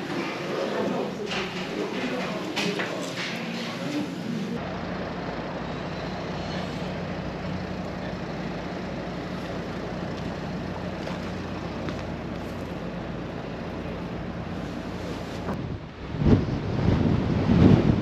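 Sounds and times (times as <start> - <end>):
road noise: 0.0 - 18.0
vehicle engine hum: 4.2 - 18.0.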